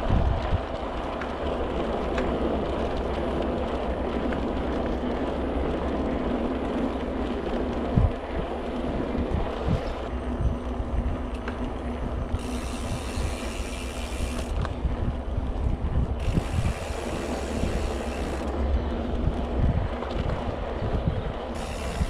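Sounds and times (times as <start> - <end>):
bike tyre rumble: 0.0 - 22.0
wind buffeting microphone: 0.0 - 22.0
freewheel ticking: 12.2 - 14.8, 16.1 - 18.6, 21.5 - 22.0.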